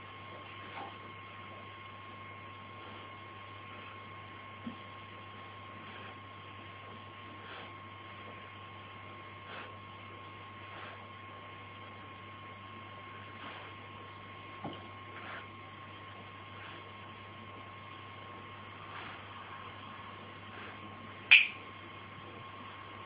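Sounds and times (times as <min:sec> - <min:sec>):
electrical hum and hiss: 0:00.0 - 0:23.0
sharp click: 0:21.3 - 0:21.6.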